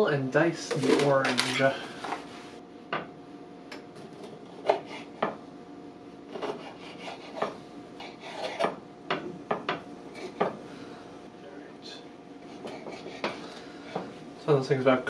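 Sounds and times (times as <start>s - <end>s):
knife scraping cutting board: 6.3s - 8.8s, 12.4s - 14.0s.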